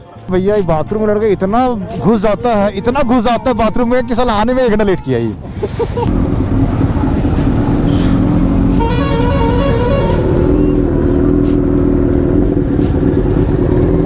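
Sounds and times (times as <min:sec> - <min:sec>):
motorcycle engine running: 0:06.1 - 0:14.0
vehicle horn: 0:07.9 - 0:11.4.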